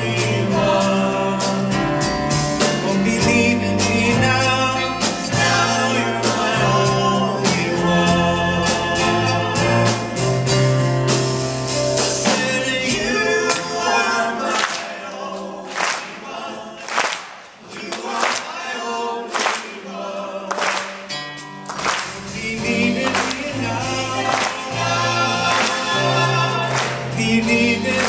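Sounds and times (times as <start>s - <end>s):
people singing: 0.0s - 10.7s, 12.0s - 28.0s
live band playing: 0.0s - 28.0s
handclaps: 14.5s - 15.0s, 15.7s - 18.6s, 19.3s - 19.8s, 20.5s - 22.4s, 23.0s - 23.6s, 24.2s - 24.8s, 25.4s - 26.0s, 26.7s - 27.2s.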